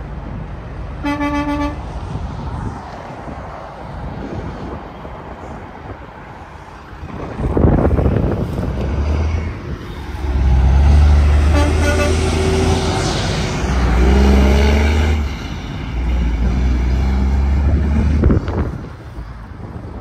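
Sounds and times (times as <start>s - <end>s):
trucks passing on highway: 0.0s - 20.0s
truck horn toot: 1.0s - 1.9s, 11.4s - 12.5s.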